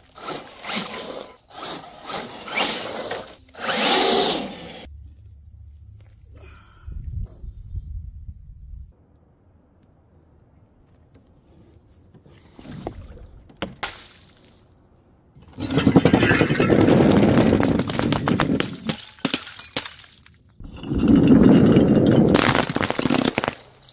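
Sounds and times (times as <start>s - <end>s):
glass bottles shattering: 15.6s - 23.9s
glass bottles clinking: 17.7s - 23.9s.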